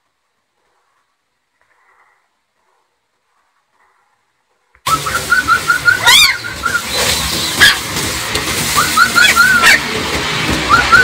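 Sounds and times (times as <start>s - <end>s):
puppy rising squeal: 4.9s - 7.8s, 8.8s - 9.8s
puppy whimpering and yelping: 6.0s - 6.4s, 9.1s - 9.8s.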